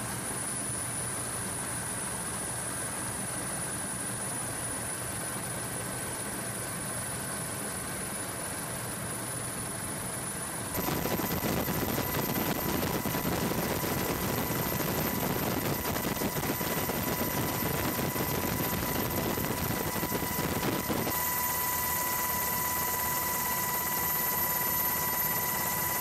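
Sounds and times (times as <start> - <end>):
aircraft engine and airflow noise: 0.0 - 26.0
high whine: 10.7 - 26.0.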